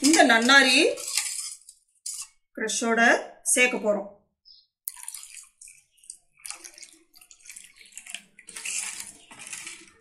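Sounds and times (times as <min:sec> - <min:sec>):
liquid pouring into a steel pot: 0:04.9 - 0:10.0.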